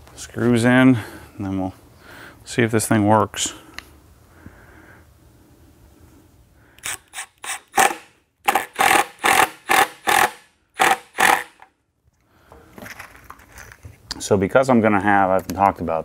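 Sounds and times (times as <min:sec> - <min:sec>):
cordless drill driving screws: 0:06.8 - 0:11.7.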